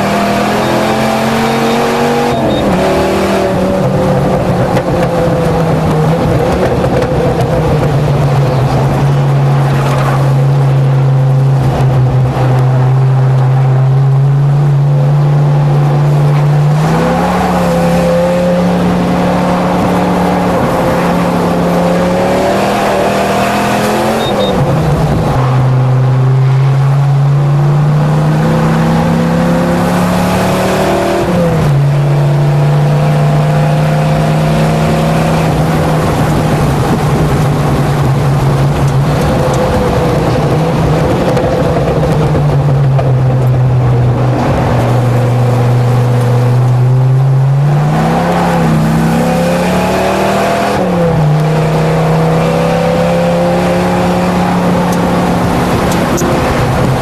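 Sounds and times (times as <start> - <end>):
pickup truck engine racing: 0.0 - 57.0.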